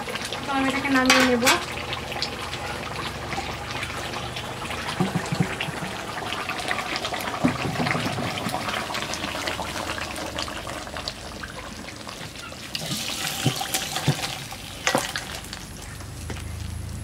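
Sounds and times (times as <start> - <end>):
curry bubbling in a pot: 0.0 - 17.0
wood fire crackling: 0.0 - 17.0
pot and bowl knocking: 5.0 - 5.9.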